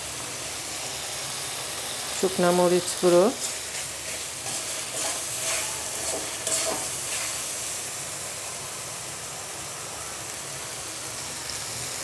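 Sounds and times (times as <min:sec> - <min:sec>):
onions sizzling in oil: 0:00.0 - 0:12.0
metal spatula scraping pan: 0:03.4 - 0:07.4.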